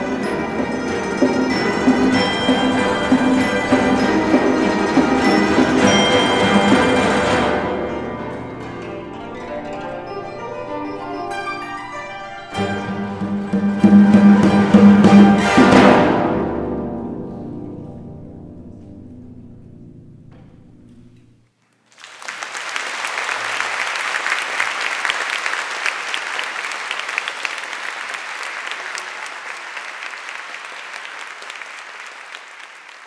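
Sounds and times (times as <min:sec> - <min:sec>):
zither ensemble chord ringing: 0:00.0 - 0:20.3
audience applause: 0:21.9 - 0:33.0.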